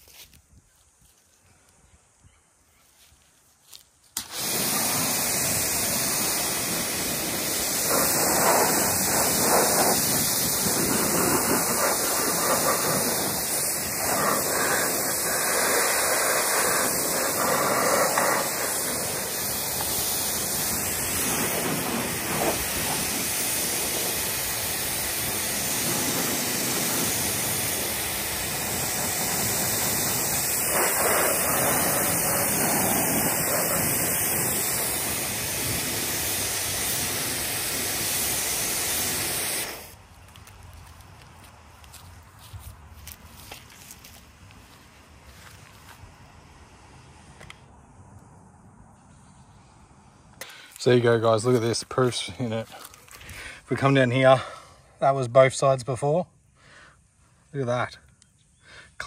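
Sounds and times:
pressure washer water jet hissing: 0:04.2 - 0:40.0.

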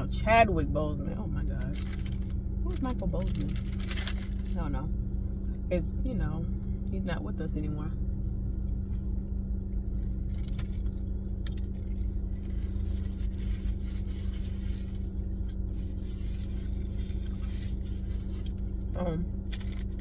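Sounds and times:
car idling: 0:00.0 - 0:20.0
paper wrapper rustling: 0:01.6 - 0:04.6, 0:10.2 - 0:18.8, 0:19.5 - 0:20.0.

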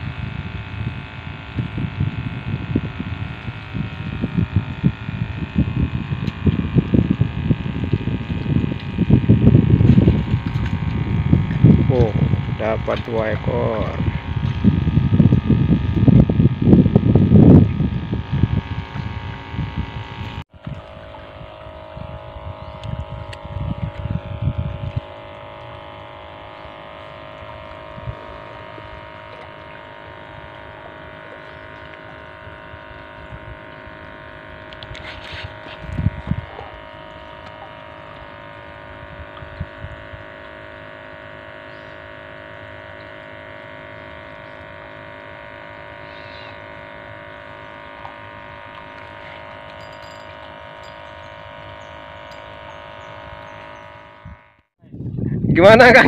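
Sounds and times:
wind rumble on microphone: 0:00.0 - 0:30.7, 0:32.0 - 0:40.8, 0:51.7 - 0:56.0
steady motor hum: 0:00.0 - 0:56.0.

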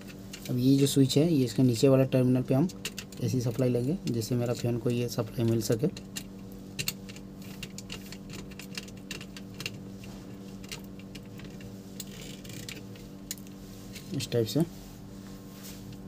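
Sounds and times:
screwdriver clicking and scraping: 0:10.6 - 0:13.5.

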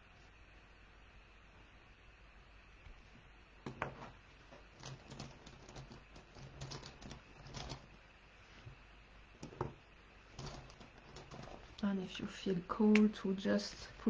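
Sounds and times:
small objects tapping on table: 0:09.4 - 0:09.8.

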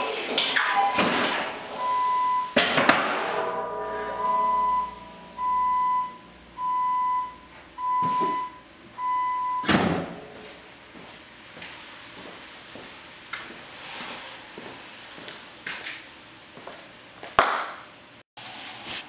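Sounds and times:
warning chime beeping: 0:01.8 - 0:02.6, 0:03.4 - 0:09.7
snowplow blade metal clanks: 0:02.6 - 0:05.5.

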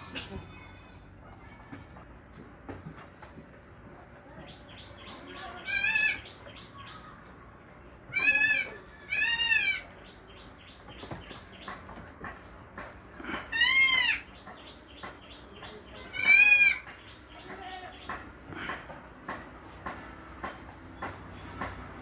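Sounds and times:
goat bleating: 0:05.6 - 0:06.2, 0:08.1 - 0:09.8, 0:13.5 - 0:14.3, 0:16.1 - 0:16.8.

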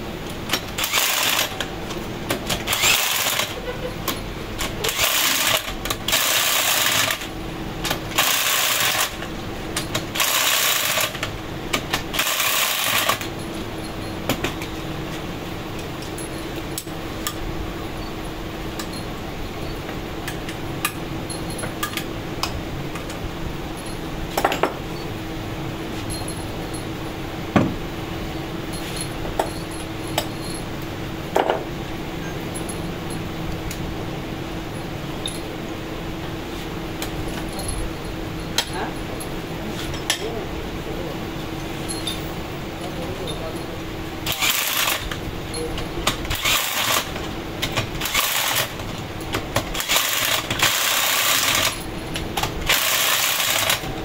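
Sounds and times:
steady machine hum: 0:00.0 - 0:54.0
electric screwdriver whirring: 0:00.8 - 0:01.6, 0:02.6 - 0:03.6, 0:04.8 - 0:07.3, 0:44.3 - 0:45.1, 0:46.3 - 0:47.1, 0:49.8 - 0:51.7, 0:52.7 - 0:53.8
metal clinks: 0:21.2 - 0:22.0, 0:26.0 - 0:27.0, 0:28.7 - 0:30.8, 0:32.2 - 0:33.3, 0:37.1 - 0:40.3, 0:41.6 - 0:42.4.

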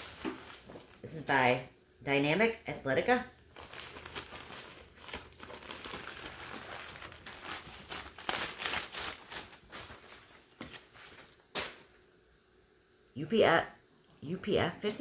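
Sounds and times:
clothing packaging crinkling: 0:00.0 - 0:01.0, 0:03.5 - 0:12.0.

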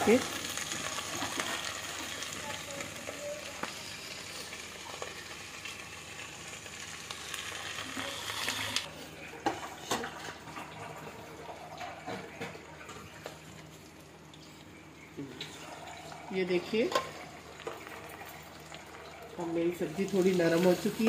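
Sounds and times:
vegetables sizzling in oil: 0:00.0 - 0:09.7, 0:15.1 - 0:21.0.

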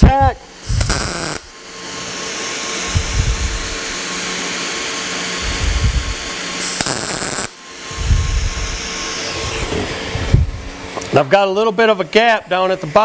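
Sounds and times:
welding arc crackling: 0:00.0 - 0:01.6, 0:05.4 - 0:07.6.

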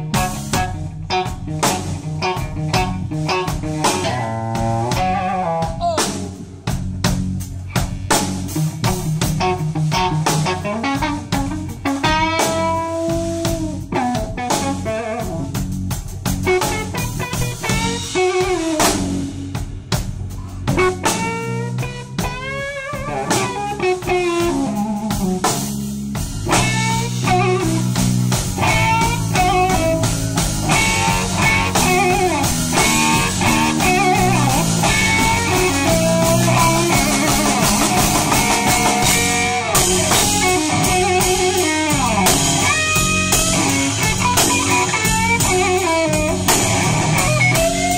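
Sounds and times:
drum kit: 0:00.0 - 0:47.9
electric guitar solo: 0:20.7 - 0:25.4, 0:26.5 - 0:47.9.

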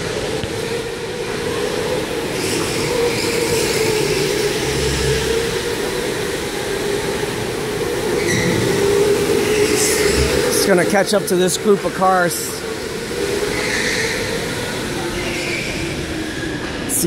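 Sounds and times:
electric motor whine: 0:02.4 - 0:16.8.

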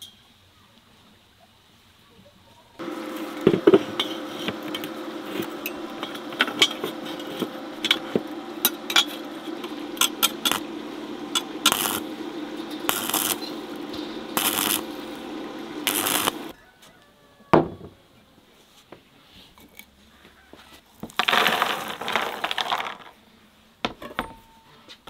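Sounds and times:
welding arc crackling: 0:02.8 - 0:16.6
welding machine hum: 0:02.8 - 0:16.6.

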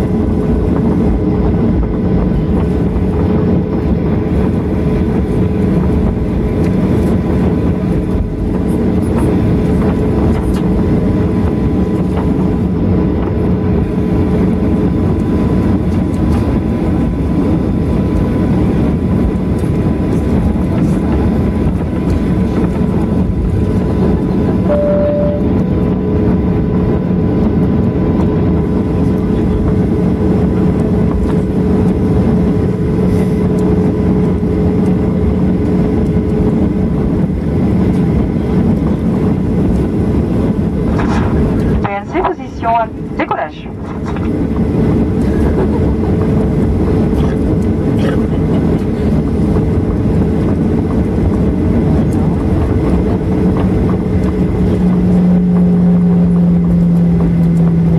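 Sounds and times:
humming and whining tones: 0:00.0 - 0:57.9
jet engines droning: 0:00.0 - 0:57.9
short beep: 0:24.6 - 0:25.6.

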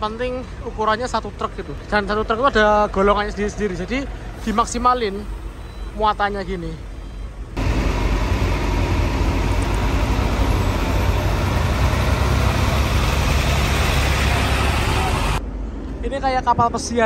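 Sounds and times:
truck diesel engine rumbling: 0:00.0 - 0:15.4.

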